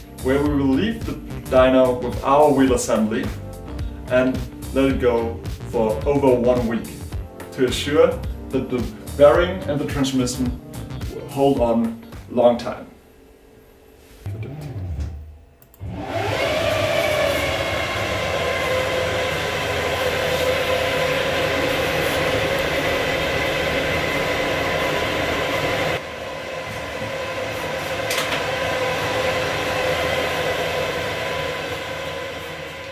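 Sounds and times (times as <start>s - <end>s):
wheel whine on dynamometer: 15.6s - 32.9s.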